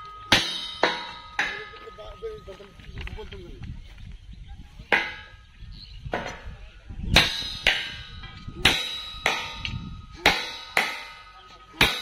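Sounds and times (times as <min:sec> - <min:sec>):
hammer clanging on steel rail: 0:00.0 - 0:02.7, 0:07.2 - 0:12.0.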